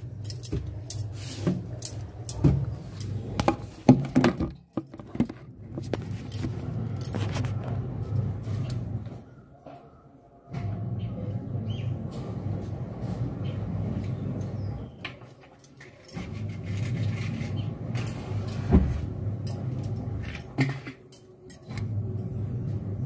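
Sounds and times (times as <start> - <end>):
phone handling rustles and knocks: 3.4 - 7.7.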